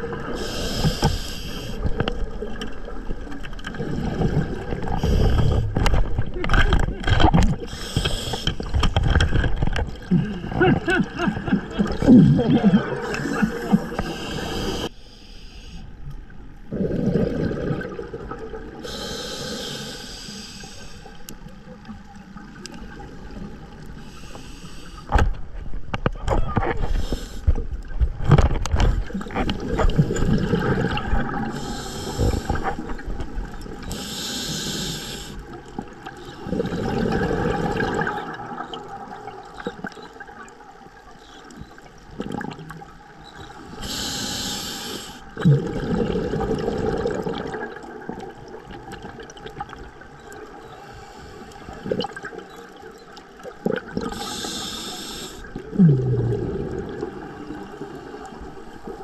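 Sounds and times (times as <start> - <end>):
gurgling exhaled bubbles: 0.0 - 14.9, 16.6 - 19.1, 26.2 - 44.5, 45.3 - 54.8, 55.4 - 59.0
diver inhaling through regulator: 0.3 - 1.9, 4.9 - 5.8, 7.6 - 8.7, 12.0 - 15.9, 18.8 - 21.2, 24.0 - 25.2, 31.5 - 32.9, 33.8 - 35.5, 43.7 - 47.1, 50.7 - 52.0, 54.0 - 58.7.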